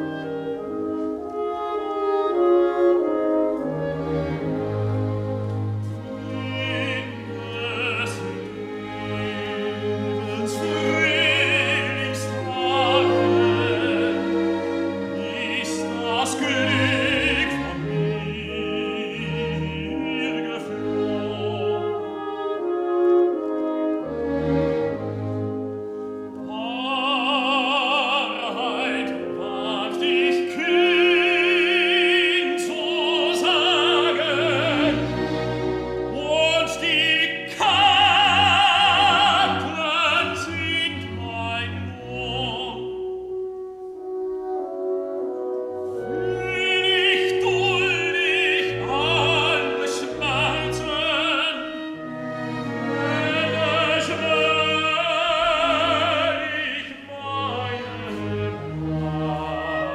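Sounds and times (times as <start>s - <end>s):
orchestra playing: 0.0s - 59.9s
tenor singing operatically: 5.9s - 22.8s, 26.4s - 43.2s, 46.0s - 59.9s.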